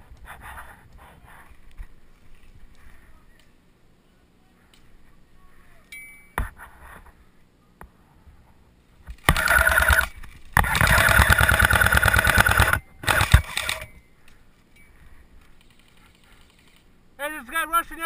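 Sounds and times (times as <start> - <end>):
airsoft gun firing full auto: 9.2 - 13.9
gearbox motor whine: 9.3 - 13.9.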